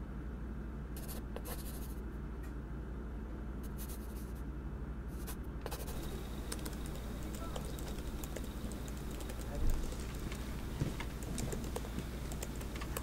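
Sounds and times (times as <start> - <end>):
steady low hum: 0.0 - 13.0
pen scratching on paper: 1.0 - 2.0, 3.7 - 4.4, 5.2 - 6.1.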